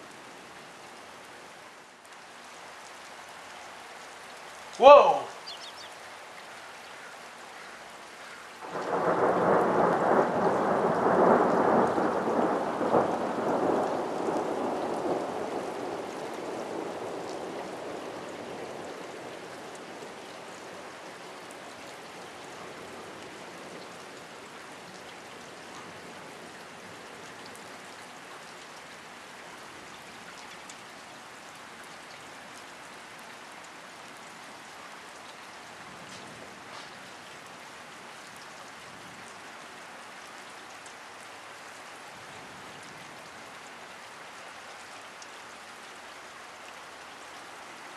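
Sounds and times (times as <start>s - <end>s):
steady rain hissing: 0.0s - 47.9s
thunder rumbling: 8.6s - 18.8s.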